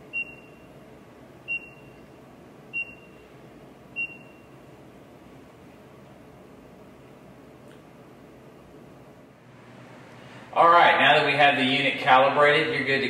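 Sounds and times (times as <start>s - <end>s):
short high control panel beeps: 0.1s - 0.7s, 1.5s - 2.1s, 2.7s - 3.3s, 4.0s - 4.6s.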